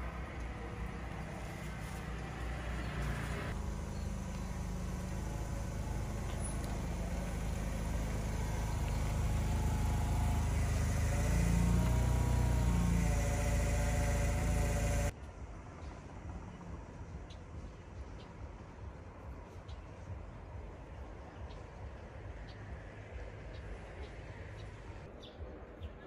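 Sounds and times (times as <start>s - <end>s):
vehicle engine running: 0.0s - 15.2s.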